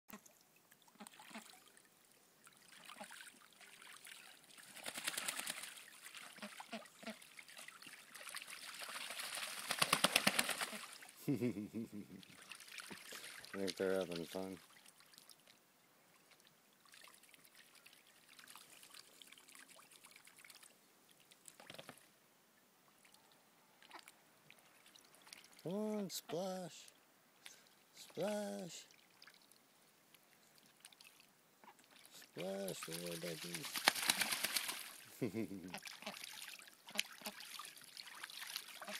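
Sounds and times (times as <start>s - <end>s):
ducks splashing in water: 0.1s - 11.2s, 12.2s - 15.5s, 16.1s - 22.1s, 23.8s - 25.7s, 27.5s - 29.6s, 30.5s - 38.9s
loud splash: 32.4s - 35.0s.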